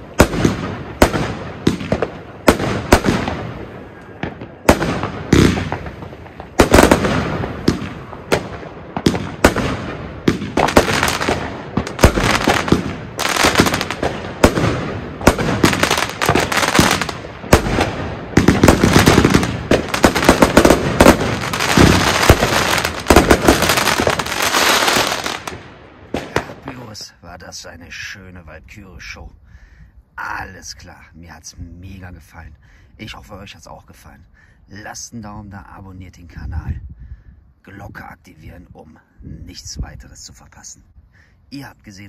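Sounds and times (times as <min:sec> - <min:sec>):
firework bursting bangs: 0:00.0 - 0:27.0.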